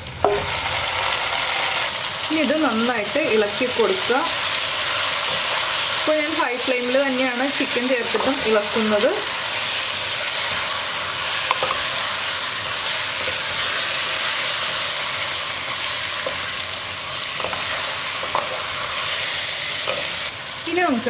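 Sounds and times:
chicken and onions sizzling in pan: 0.0 - 21.0
spatula scraping and tapping pan: 11.4 - 11.9, 17.3 - 18.8.

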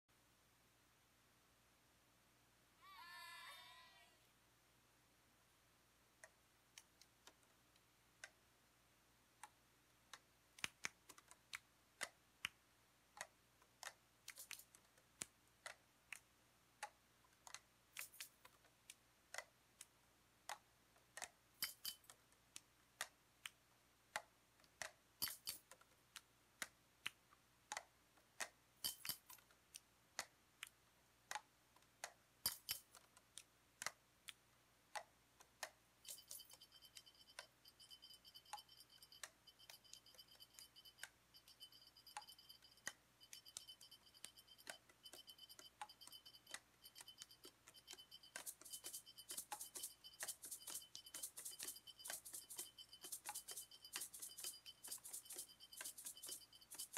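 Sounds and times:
clicks and taps on objects: 20.5 - 23.6, 24.2 - 34.4, 35.0 - 56.9.

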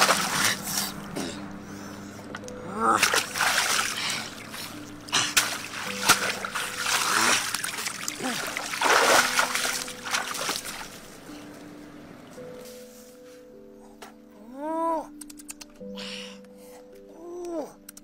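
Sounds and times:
water splashing around wading person: 0.0 - 1.1, 2.9 - 11.6.

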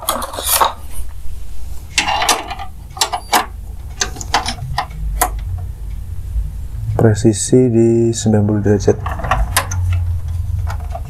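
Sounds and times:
metal scrapes and clicks: 0.0 - 1.0.

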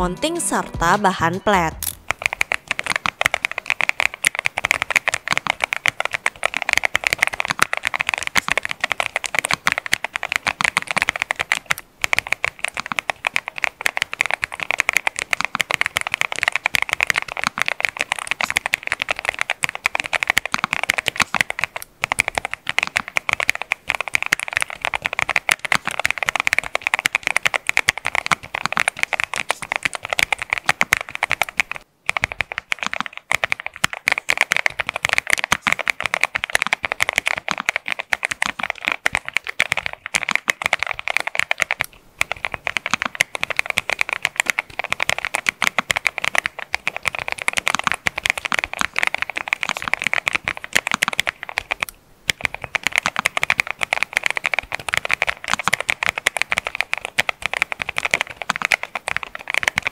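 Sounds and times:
fast typing on mechanical keyboard: 1.2 - 59.9.

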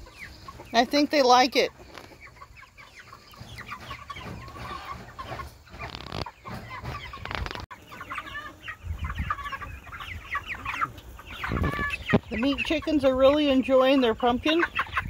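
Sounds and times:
chickens clucking and chirping: 0.0 - 15.0.

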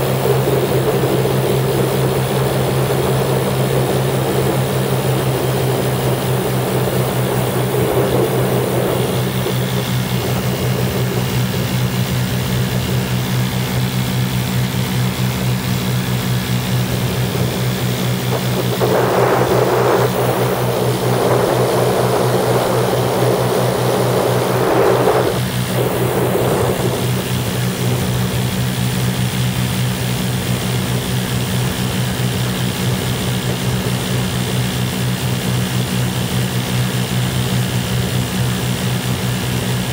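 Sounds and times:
rushing air: 0.0 - 37.1
aircraft engines droning: 0.0 - 39.9.

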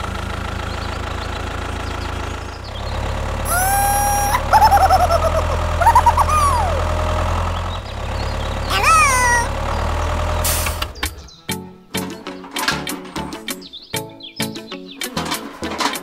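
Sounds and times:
tractor engine drone: 0.0 - 8.7
squeaky cartoon sounds: 3.5 - 7.0, 8.7 - 9.5.

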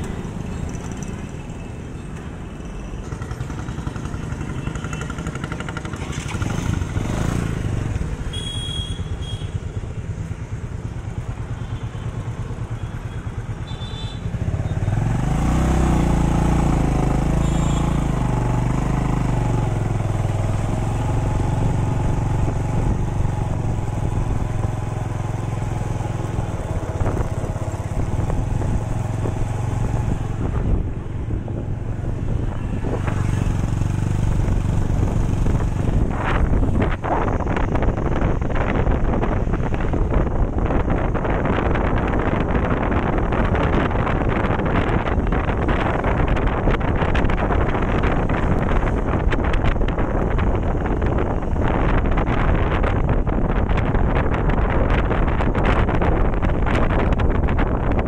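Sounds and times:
highway traffic passing: 0.0 - 58.0.

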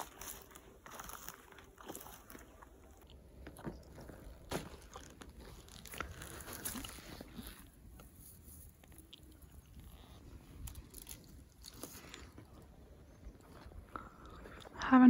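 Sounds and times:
footsteps crunching on dry lichen: 0.0 - 14.2.

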